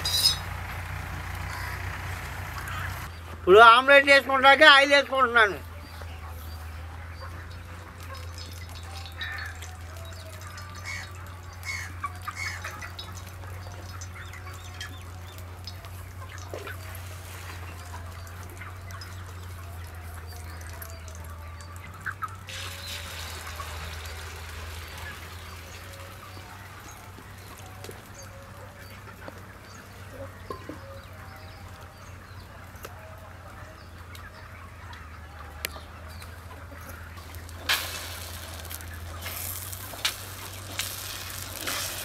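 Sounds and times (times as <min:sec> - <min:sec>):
fowl calling: 0:00.0 - 0:03.1, 0:07.1 - 0:13.2
batter sizzling in hot oil: 0:22.5 - 0:25.8, 0:37.6 - 0:42.0.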